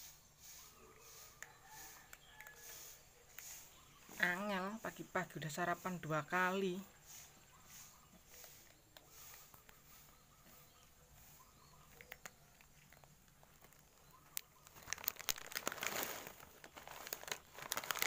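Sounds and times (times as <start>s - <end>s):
plastic crinkling and rustling: 12.2s - 18.0s.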